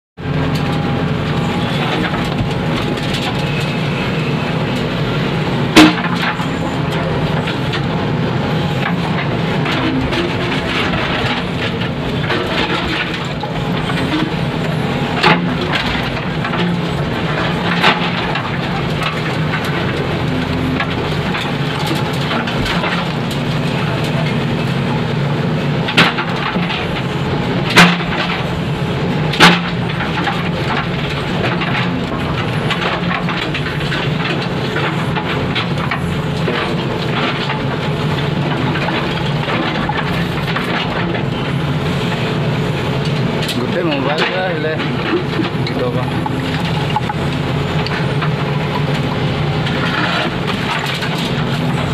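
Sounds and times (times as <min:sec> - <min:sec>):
diesel engine under hydraulic load: 0:00.2 - 0:51.9
bucket striking bricks: 0:05.8 - 0:06.4.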